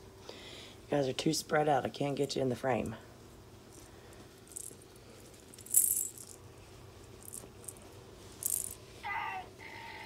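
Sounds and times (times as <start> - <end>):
bell ball jingling: 8.4 - 8.8.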